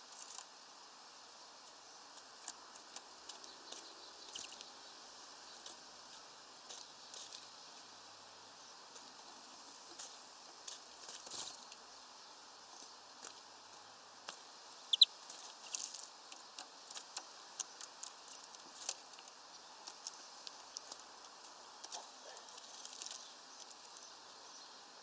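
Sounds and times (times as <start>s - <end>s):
high bird chirp: 3.5s - 4.6s, 14.9s - 15.2s
birds tapping on feeder: 14.3s - 24.1s.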